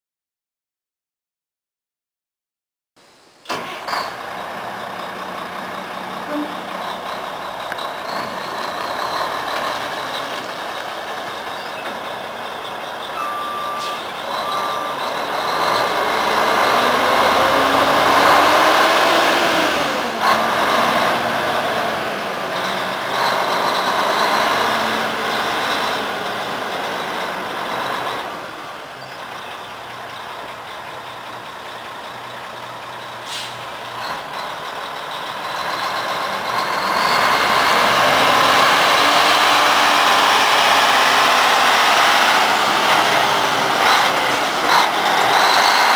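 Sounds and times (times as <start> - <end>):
truck diesel engine running: 3.5 - 45.9
backup alarm beeping: 13.1 - 15.1.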